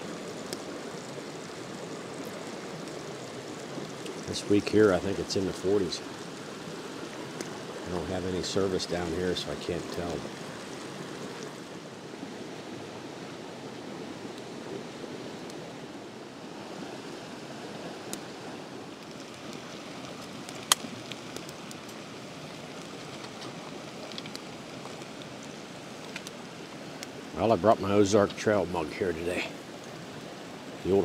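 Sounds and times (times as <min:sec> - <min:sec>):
wood fire crackling and popping: 0:00.1 - 0:05.7, 0:07.3 - 0:08.6, 0:18.9 - 0:27.2.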